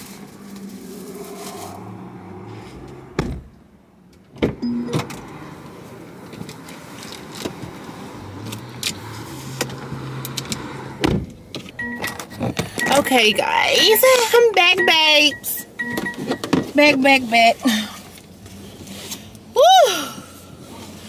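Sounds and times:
sharp thumps in a car: 3.1 - 3.6, 11.0 - 11.7.

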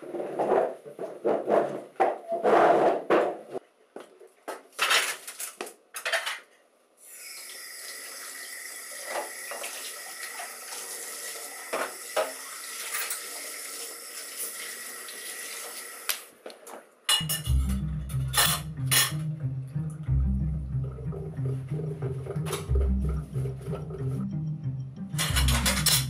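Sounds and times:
tap water running into sink: 7.2 - 16.1
dishes clinking: 17.1 - 19.3, 25.2 - 26.0.

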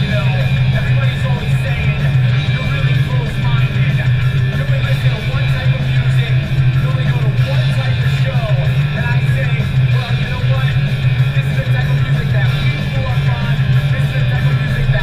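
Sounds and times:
guitar music: 0.0 - 15.0.

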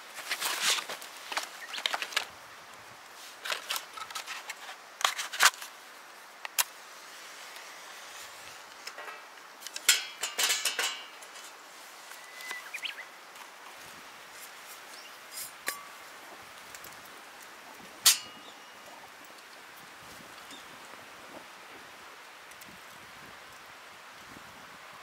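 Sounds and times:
rustling: 0.0 - 2.4, 3.0 - 19.0.

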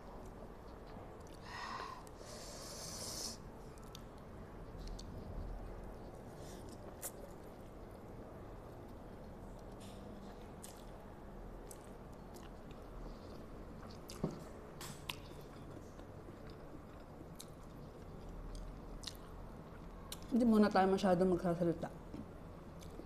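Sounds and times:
chewing with wet mouth clicks: 0.2 - 1.4, 3.7 - 8.1, 8.7 - 11.0, 11.6 - 20.3, 22.1 - 23.0.

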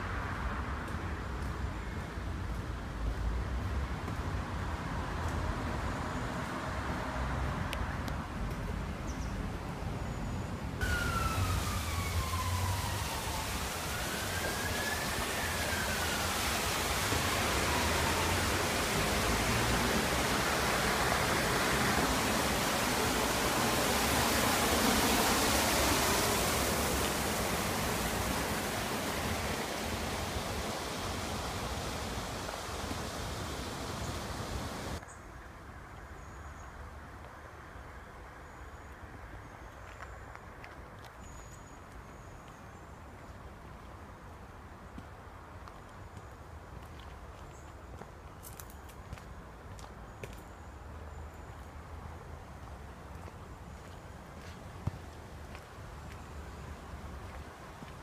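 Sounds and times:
distant siren wailing: 10.8 - 35.0
rushing churning water: 10.8 - 35.0.

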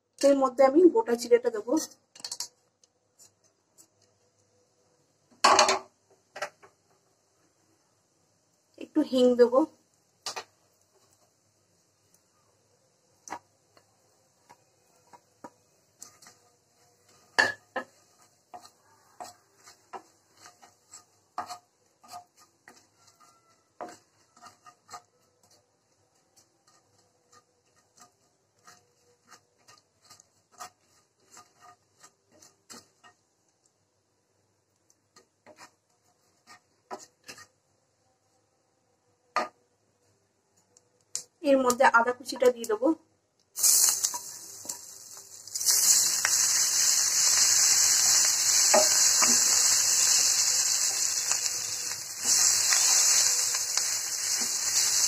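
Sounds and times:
spatula scraping frying pan: 14.4 - 33.3, 35.2 - 37.6, 43.6 - 55.0.

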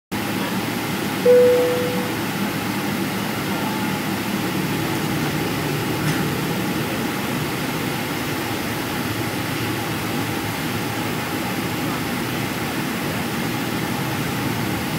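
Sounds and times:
ringing tone: 1.3 - 2.2.

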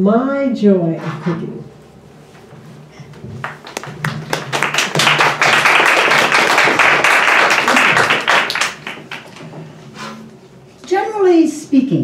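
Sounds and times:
audience applauding: 3.4 - 9.4.

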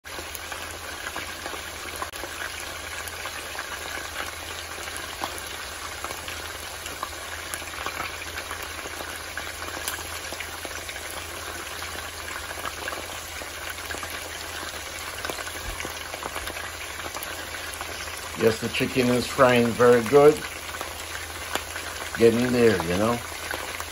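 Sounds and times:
chicken frying in oil: 0.0 - 23.9
small pops and crackles: 20.2 - 23.9.

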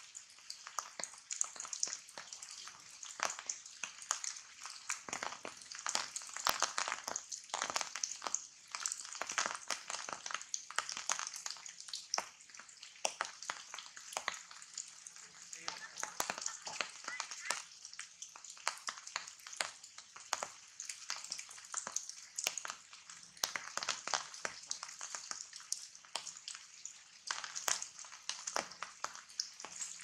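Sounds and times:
raindrops pattering on leaves: 0.0 - 30.0
rain hissing: 12.8 - 30.0.

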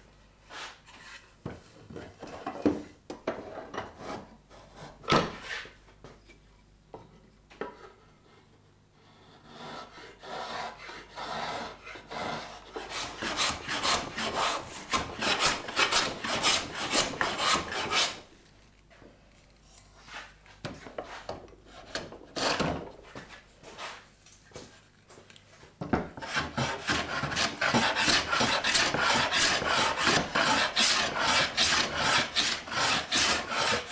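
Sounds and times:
hand plane scraping wood: 9.0 - 18.2, 26.2 - 33.9.

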